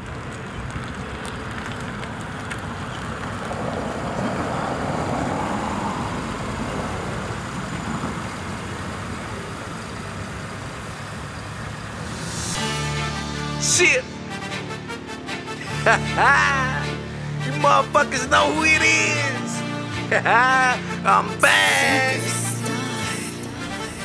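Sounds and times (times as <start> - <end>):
car tyres and engine rushing: 0.0 - 13.5, 19.7 - 24.0.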